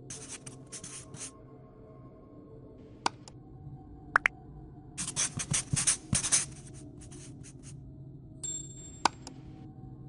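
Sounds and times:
marker scribbling on whiteboard: 0.1s - 1.3s, 5.0s - 7.7s.

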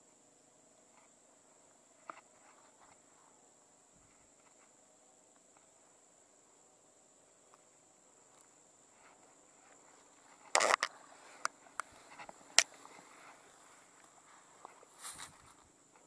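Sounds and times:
high insect drone: 0.0s - 16.0s
sharp clicks: 10.5s - 12.7s.

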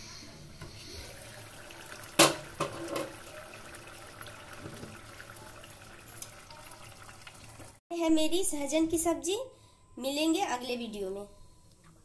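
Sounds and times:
curry bubbling in a pot: 1.0s - 7.8s.

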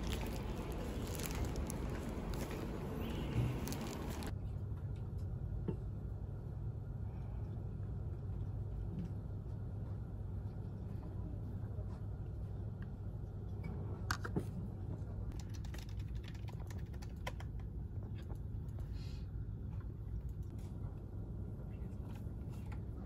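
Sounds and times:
plastic packaging crinkling: 0.0s - 4.3s
low steady hum: 0.0s - 23.0s.

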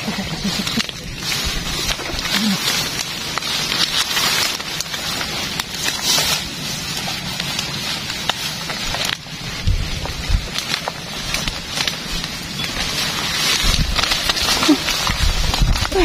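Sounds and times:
grass and leaves rustling: 0.0s - 16.0s
light crackles and clicks: 0.0s - 16.0s.

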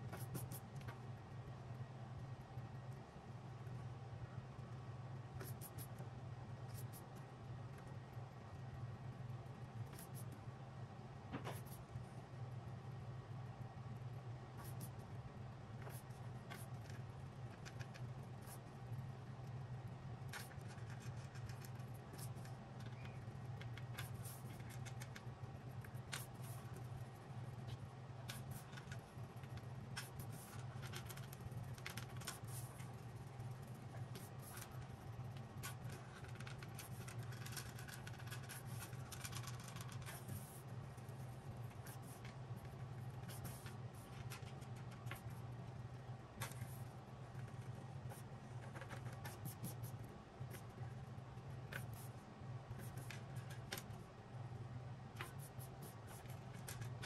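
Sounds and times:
steady low hum: 0.0s - 57.0s
light clicks and scratching: 15.8s - 18.8s, 20.2s - 54.1s, 55.1s - 57.0s.

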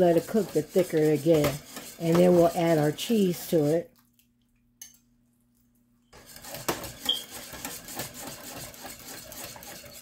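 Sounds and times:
whisk scraping metal pot: 0.0s - 3.9s, 6.2s - 10.0s.

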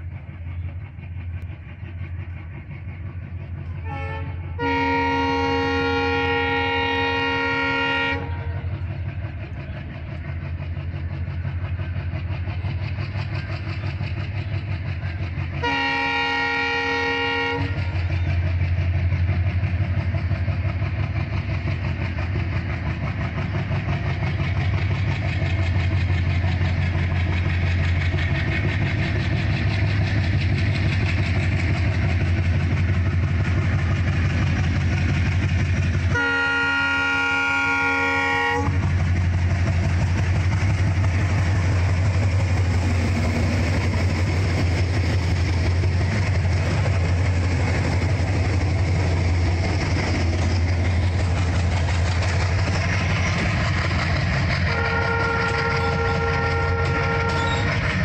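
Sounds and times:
diesel locomotive engine droning: 0.0s - 58.0s
locomotive horn blasts: 3.8s - 8.7s, 15.6s - 18.0s, 36.1s - 38.8s, 54.7s - 57.8s.

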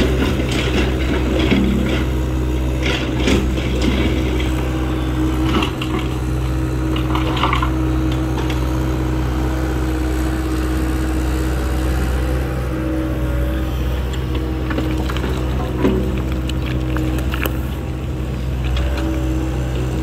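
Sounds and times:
diesel engine running: 0.0s - 20.0s
excavator bucket knocks and rattles: 14.7s - 17.4s.

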